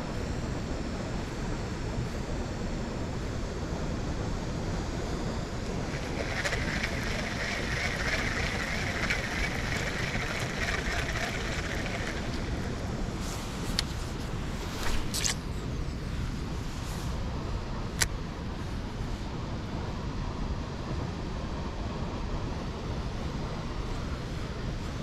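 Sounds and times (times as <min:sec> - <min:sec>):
wind: 0:00.0 - 0:25.0
fishing reel whirring: 0:04.9 - 0:15.8
water rushing: 0:05.7 - 0:13.3.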